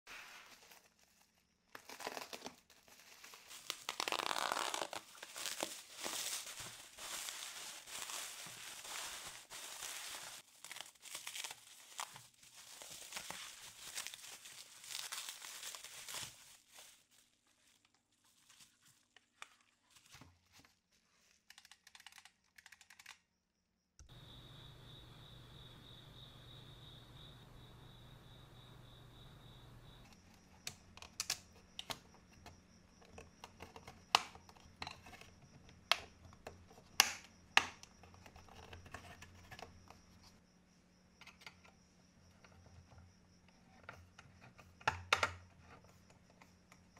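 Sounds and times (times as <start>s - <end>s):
bubble wrap crinkling: 0.1s - 21.4s
packing tape tearing: 1.7s - 17.0s.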